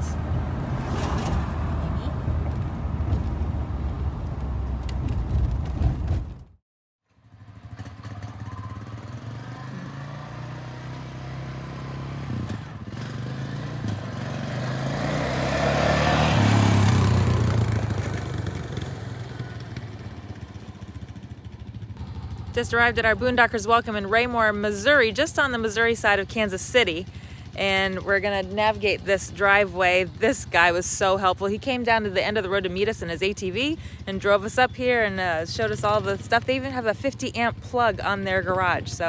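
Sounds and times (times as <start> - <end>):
road noise inside moving vehicle: 0.0 - 6.4
quad atv driving past: 7.2 - 39.0
pickup truck driving past: 8.1 - 21.4.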